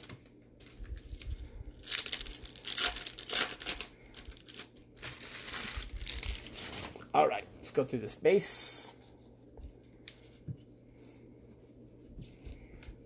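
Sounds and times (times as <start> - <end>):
wrapper tearing and crinkling: 0.9 - 7.1.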